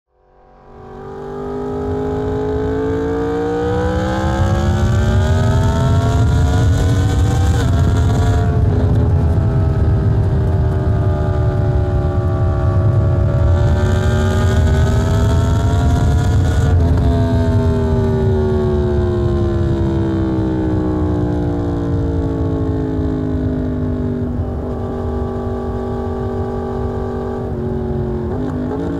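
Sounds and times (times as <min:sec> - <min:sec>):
wind rush: 0:03.7 - 0:21.1.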